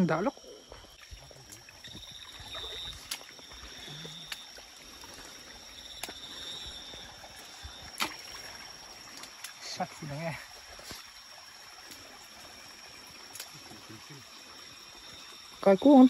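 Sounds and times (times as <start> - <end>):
high insect trill: 0.0 - 16.0
footsteps splashing through stream: 0.7 - 13.6.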